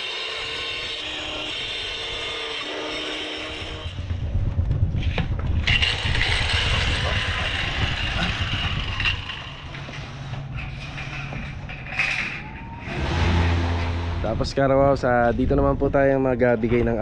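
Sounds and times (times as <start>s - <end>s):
angle grinder cutting tile: 5.6s - 12.2s.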